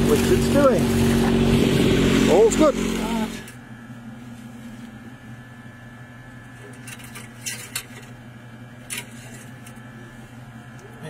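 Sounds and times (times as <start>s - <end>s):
boat engine hum: 0.0s - 6.8s
clicks and knocks of engine parts: 6.5s - 8.2s, 8.8s - 9.8s.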